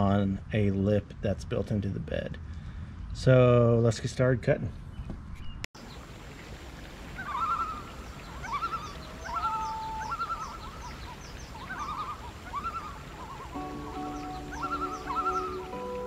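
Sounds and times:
warbling animal calls: 7.0 - 16.0
faint bird chirps: 7.2 - 15.9.

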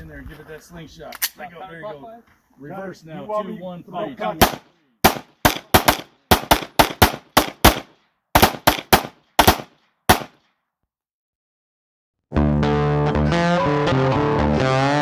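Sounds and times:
pistol shots: 4.4 - 10.4.

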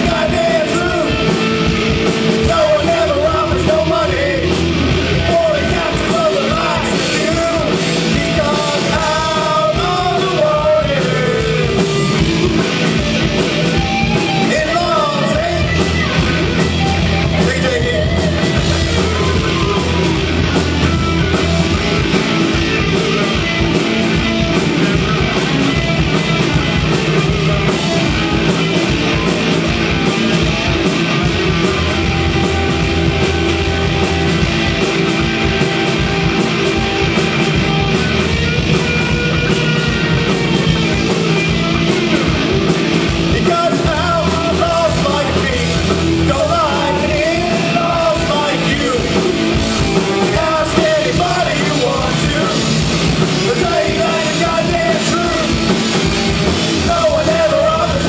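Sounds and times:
person singing: 0.0 - 13.0, 13.7 - 23.7, 38.8 - 58.0
punk rock band playing: 0.0 - 58.0.

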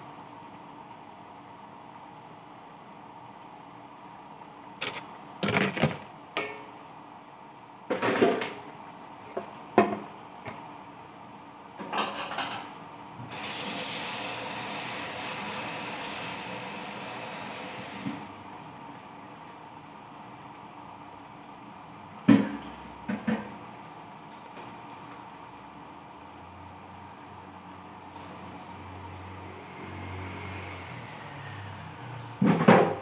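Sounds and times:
dishes and utensils clattering: 11.8 - 12.7.

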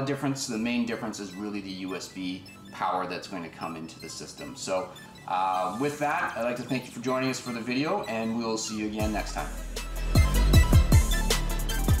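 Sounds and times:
steady low bass: 9.0 - 12.0.

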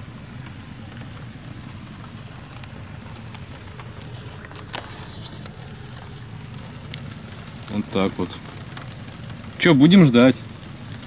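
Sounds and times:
heavy rain pattering: 0.0 - 11.0
handling rustle and clicks: 0.4 - 11.0.

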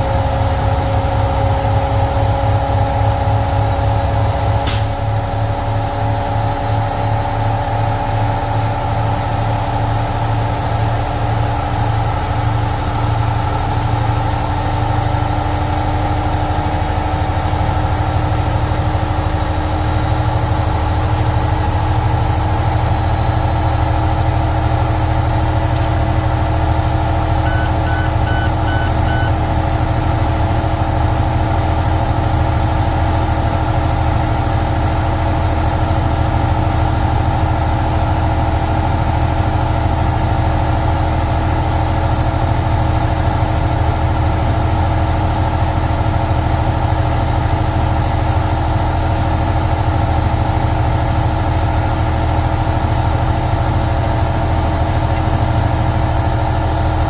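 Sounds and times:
diesel truck engine idling: 0.0 - 57.0
short electronic beeps: 27.4 - 29.4.

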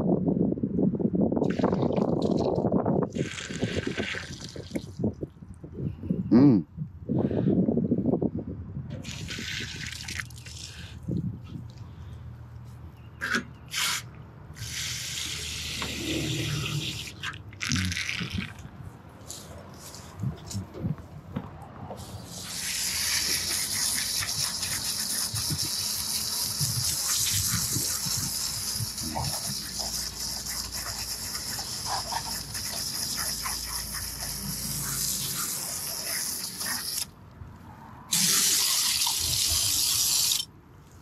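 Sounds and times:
hose spraying water into metal: 3.1 - 4.9, 9.0 - 11.0, 13.2 - 18.5, 22.0 - 37.1, 38.1 - 40.5.

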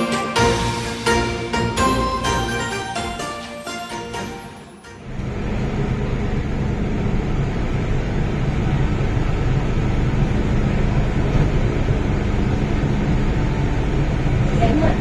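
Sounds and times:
jingle: 0.0 - 5.1
train car hum and rumble: 4.2 - 15.0.

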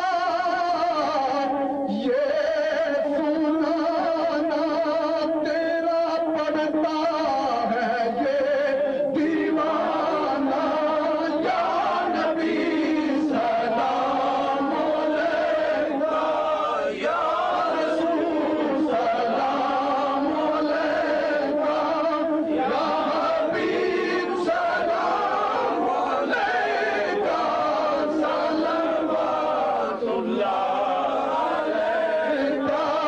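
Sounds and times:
group of voices chanting: 11.5 - 21.9, 22.5 - 33.0.

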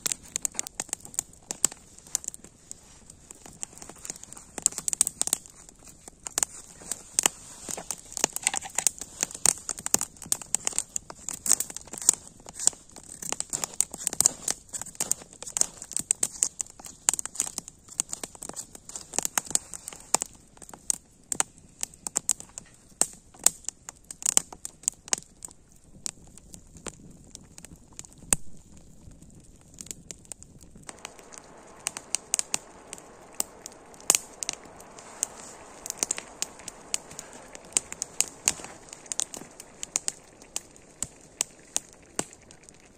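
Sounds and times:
campfire crackling and popping: 0.0 - 42.9.

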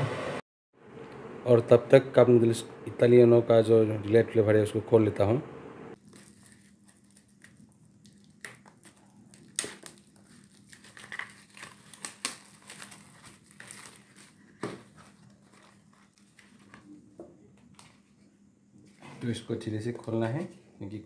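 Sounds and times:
packaging crinkling and crackling: 6.0 - 16.9.

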